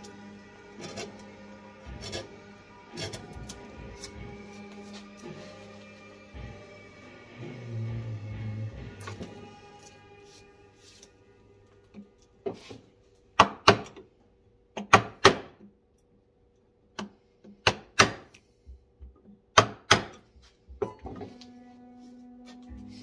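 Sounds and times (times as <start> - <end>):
mallet striking chisel into wood: 13.4 - 14.0, 14.8 - 15.6, 17.0 - 18.3, 19.5 - 20.2.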